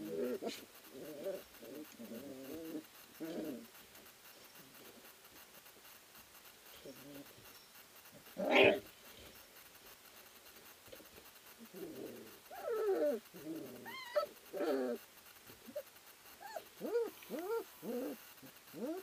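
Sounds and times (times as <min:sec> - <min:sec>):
puppies whining and yelping: 0:12.5 - 0:15.0, 0:15.7 - 0:18.2.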